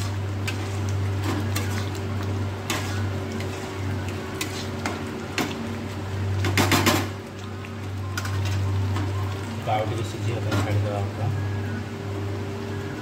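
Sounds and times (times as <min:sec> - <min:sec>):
curry sizzling in a pan: 0:00.0 - 0:10.9
ladle scraping and knocking pan: 0:02.6 - 0:05.6.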